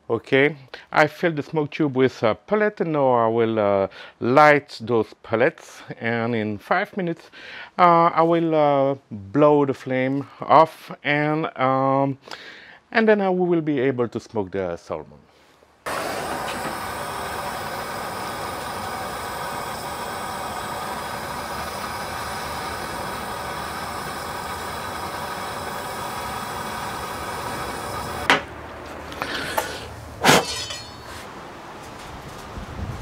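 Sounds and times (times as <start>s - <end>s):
puffs of breath: 3.9s - 4.2s, 7.3s - 7.8s, 12.2s - 12.9s, 29.1s - 30.0s
torch lighter flame hissing: 15.9s - 28.3s.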